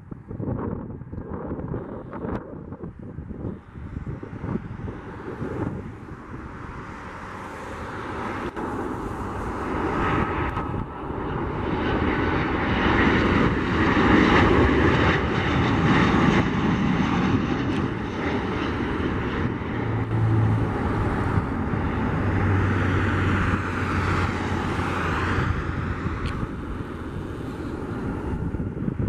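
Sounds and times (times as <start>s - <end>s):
jet airliner engine noise: 0.0s - 29.0s
low steady drone: 18.8s - 27.9s.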